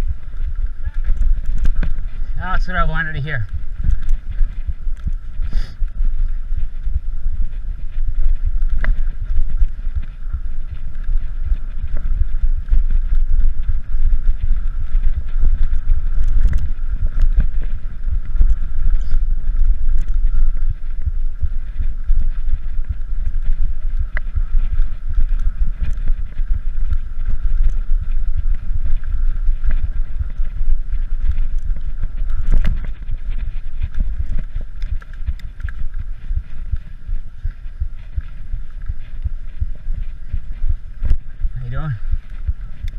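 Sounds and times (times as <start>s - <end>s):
wind rumble on microphone: 0.0s - 42.9s.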